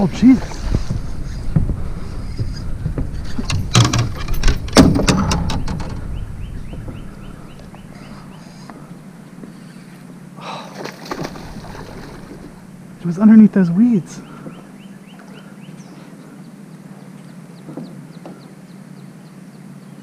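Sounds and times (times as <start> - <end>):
gear knocking against boat: 0.6 - 8.3
water rushing: 10.0 - 14.1.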